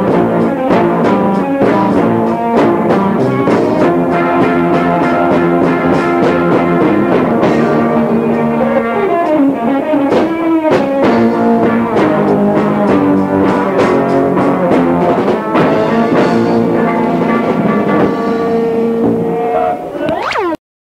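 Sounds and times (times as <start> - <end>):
rock band playing: 0.0 - 19.6
sliding pitch: 19.4 - 20.6.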